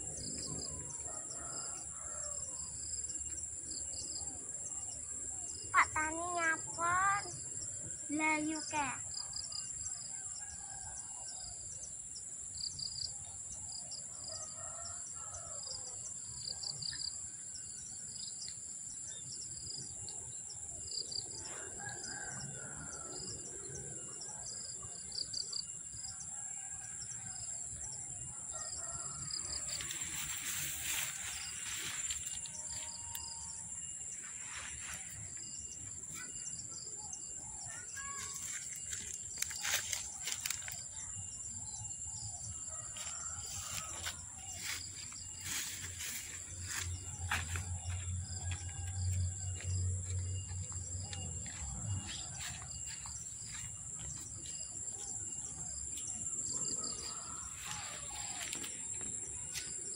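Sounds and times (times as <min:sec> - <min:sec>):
insects buzzing: 0:16.3 - 0:59.9
rooster crowing: 0:21.6 - 0:23.2, 0:42.6 - 0:44.8, 0:56.6 - 0:58.6
rustling noise: 0:29.7 - 0:32.9.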